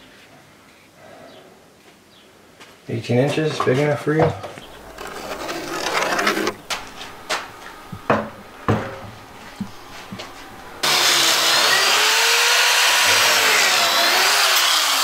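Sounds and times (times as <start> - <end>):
wooden boards knocking: 4.2 - 10.9
electric drill whining: 9.5 - 15.0.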